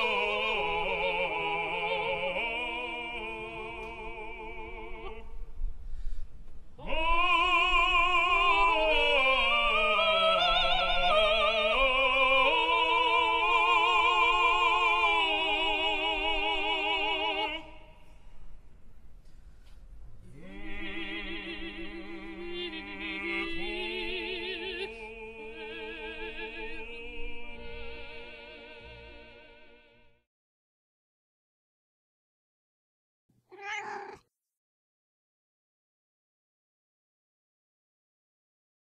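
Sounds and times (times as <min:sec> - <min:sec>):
operatic singing with vibrato: 0:00.0 - 0:05.4, 0:06.8 - 0:18.0, 0:20.2 - 0:30.0.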